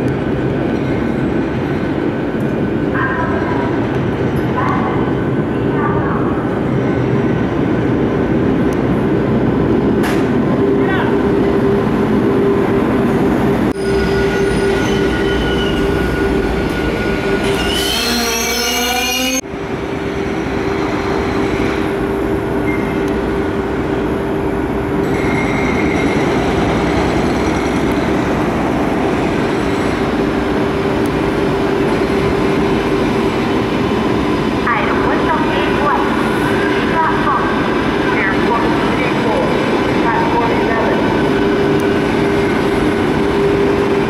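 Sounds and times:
train wheels rumbling on rail: 0.0s - 44.0s
train wheels squealing: 13.8s - 19.4s, 25.0s - 26.4s.

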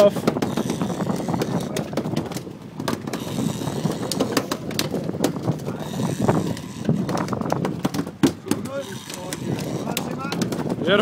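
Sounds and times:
fishing reel ratchet clicking: 3.2s - 4.2s, 8.8s - 10.1s.

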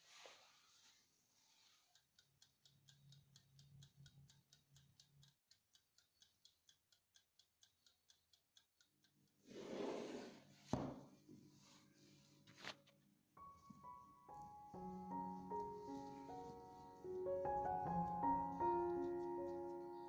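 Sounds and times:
clockwork timer ticking: 1.9s - 9.4s.

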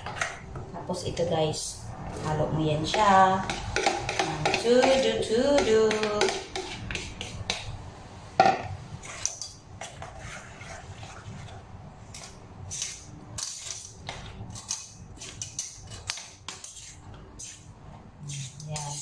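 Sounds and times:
food being stirred in bowl: 0.0s - 0.8s, 2.0s - 19.0s
metal spoon knocking on bowl: 2.9s - 7.6s.

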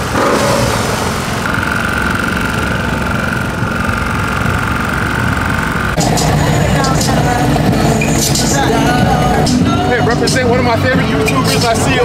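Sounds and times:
steady high-pitched tone: 0.0s - 2.6s
motorcycle engine idling: 0.0s - 12.0s.

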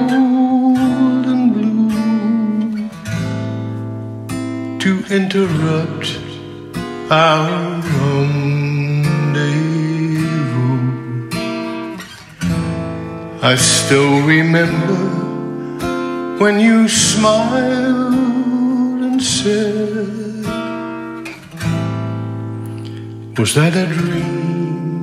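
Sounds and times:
acoustic guitar chords: 0.0s - 25.0s.

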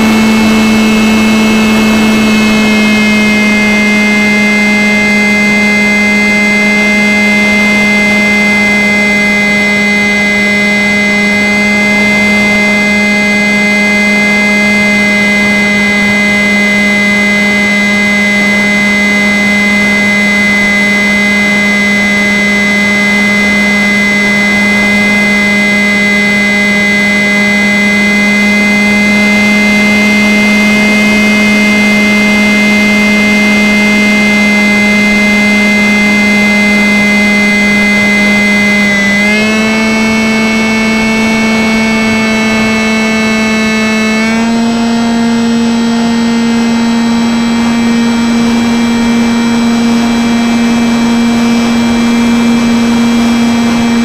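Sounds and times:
electric motor whine: 0.0s - 54.0s.

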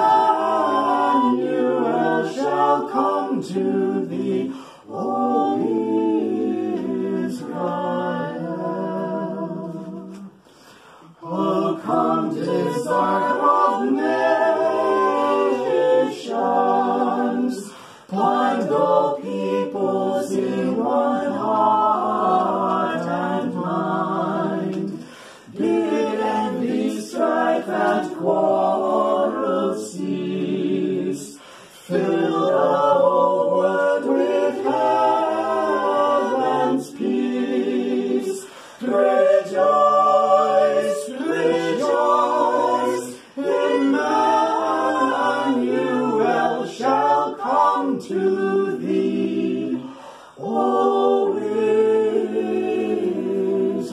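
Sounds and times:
a cappella group singing carol: 0.0s - 53.9s
singers breathing: 4.5s - 4.9s, 10.3s - 11.2s, 17.7s - 18.1s, 25.0s - 25.6s, 31.3s - 31.9s, 38.4s - 38.9s, 49.8s - 50.4s.

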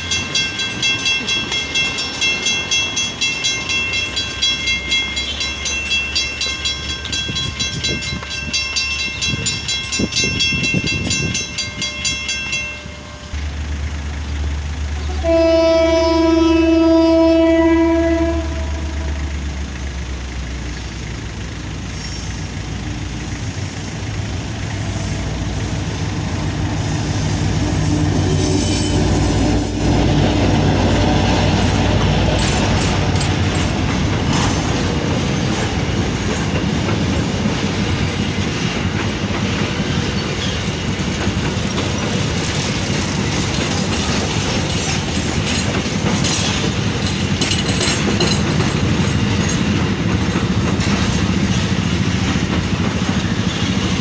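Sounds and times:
diesel locomotive engine: 0.0s - 54.0s
wagon wheels clicking over rail joints: 31.5s - 54.0s.

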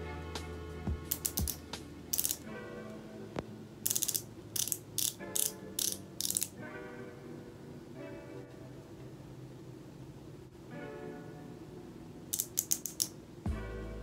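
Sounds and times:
soft background music: 0.0s - 14.0s
rapid clicking bursts: 1.1s - 2.4s, 12.4s - 13.1s.

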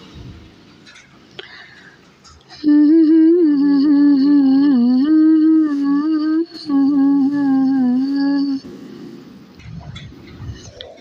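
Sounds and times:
woman humming a slow melody: 2.5s - 8.7s.

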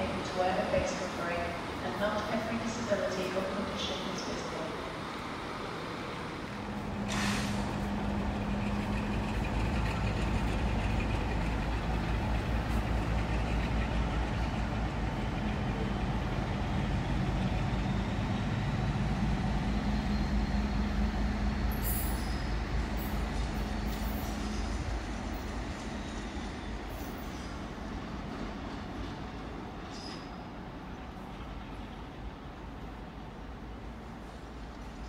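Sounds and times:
diesel locomotive engine throb: 0.0s - 26.9s.

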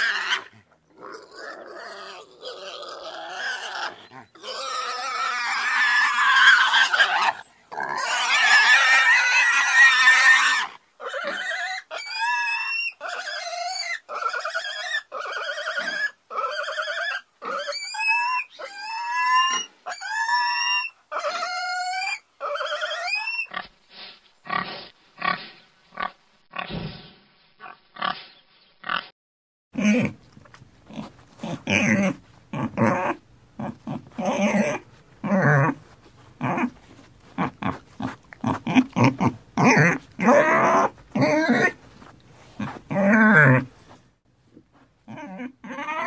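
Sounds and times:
pigs squealing: 0.0s - 23.6s, 30.9s - 35.8s, 36.4s - 41.8s, 42.6s - 43.7s, 45.1s - 46.0s
pig grunts: 29.8s - 30.2s, 30.9s - 35.8s, 37.4s - 41.8s.

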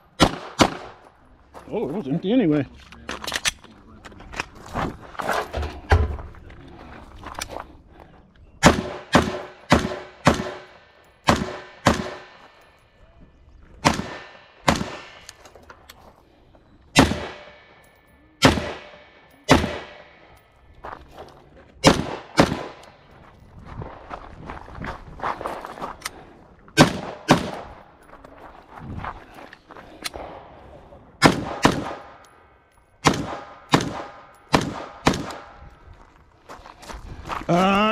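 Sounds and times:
gunshots with ringing echo: 0.1s - 1.0s, 8.6s - 12.6s, 13.8s - 15.3s, 16.9s - 20.4s, 21.8s - 23.1s, 26.8s - 27.9s, 30.1s - 35.7s.

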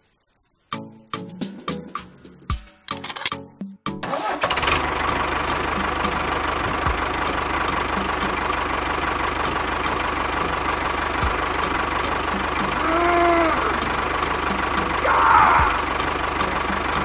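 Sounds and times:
diesel engine idling with clatter: 4.2s - 17.0s.

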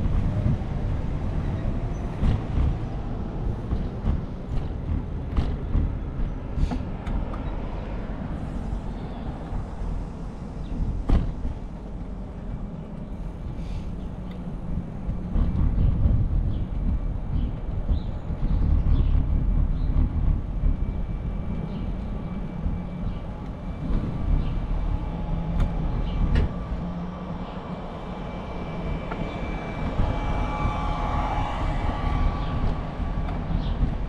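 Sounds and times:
road noise: 0.0s - 34.0s
wind rumbling on microphone: 0.0s - 34.0s
faint high whine: 20.8s - 34.0s.

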